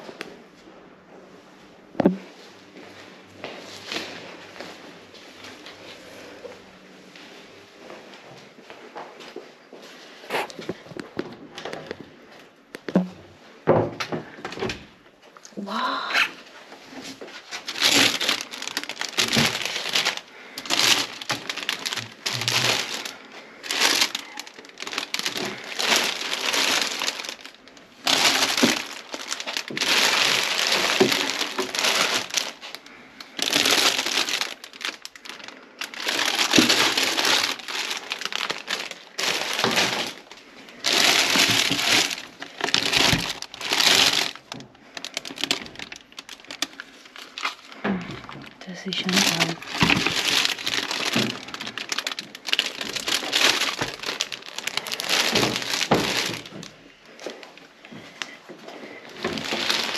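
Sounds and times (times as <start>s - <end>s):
cellophane wrappers crinkling: 16.8s - 59.9s.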